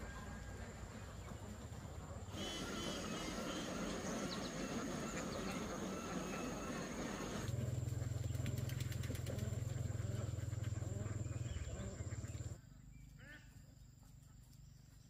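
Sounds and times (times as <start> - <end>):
steady low hum: 0.0 - 15.0
ducks calling: 0.8 - 13.5.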